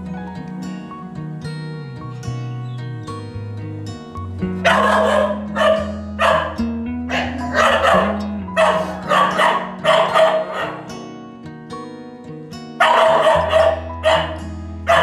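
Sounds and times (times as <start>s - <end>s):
background music with held tones: 0.0s - 15.0s
dog barking: 4.6s - 10.9s, 12.8s - 15.0s.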